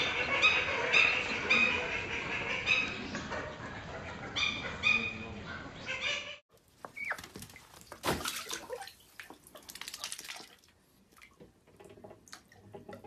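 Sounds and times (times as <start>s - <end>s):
duck splashing in water: 7.0s - 11.5s
water dripping: 7.2s - 13.0s.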